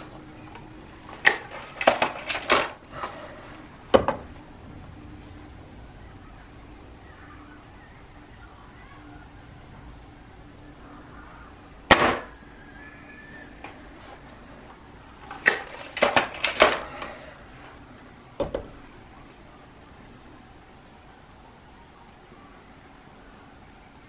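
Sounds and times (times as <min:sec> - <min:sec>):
air rifle shot: 0:11.9 - 0:12.4.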